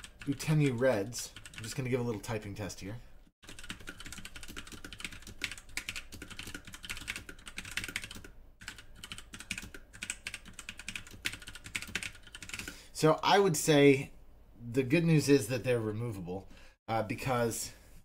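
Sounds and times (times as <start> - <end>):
mechanical keyboard typing: 1.4 - 1.8, 3.4 - 12.7.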